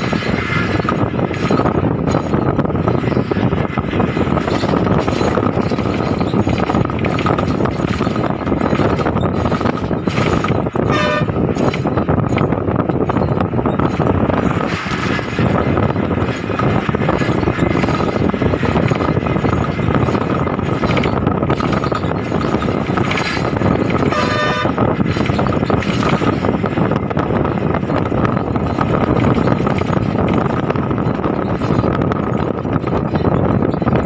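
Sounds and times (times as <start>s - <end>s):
road and wind noise: 0.0s - 34.0s
vehicle horn honk: 10.9s - 11.3s, 24.1s - 24.8s.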